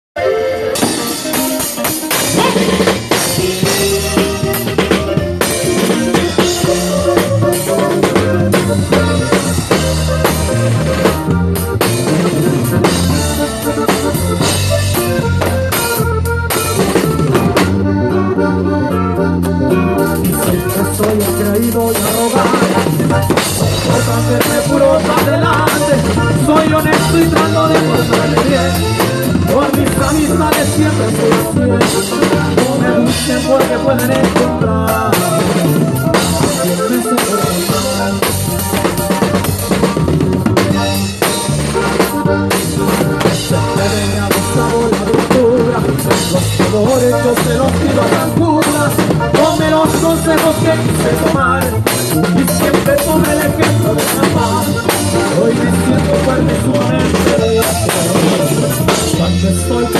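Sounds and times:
drum kit with cymbals: 0:00.2 - 0:59.9
live band music: 0:00.2 - 0:59.9.

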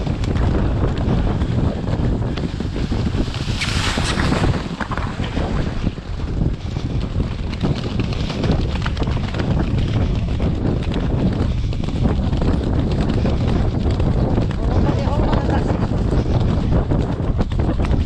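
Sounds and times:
hooves galloping on turf: 0:00.0 - 0:18.0
wind buffeting microphone: 0:00.0 - 0:18.0.

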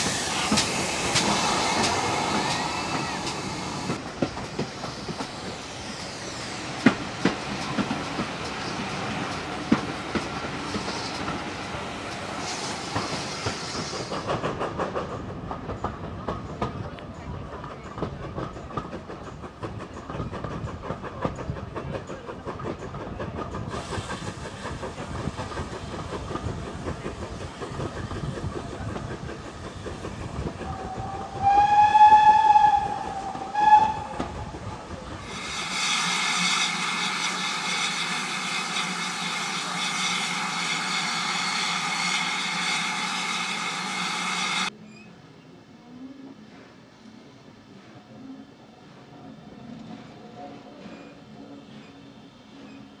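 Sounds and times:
steam hiss with held tones: 0:00.0 - 0:09.6, 0:10.6 - 0:14.3, 0:35.2 - 0:44.7
train wheels clicking over rail joints: 0:00.0 - 0:44.7
steam whistle: 0:30.8 - 0:34.3.

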